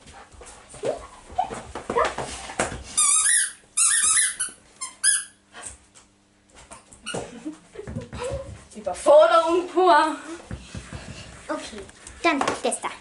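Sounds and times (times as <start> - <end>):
squeaky dog toy squeaking: 3.0 - 5.4
soft rustling and knocks: 10.4 - 12.8.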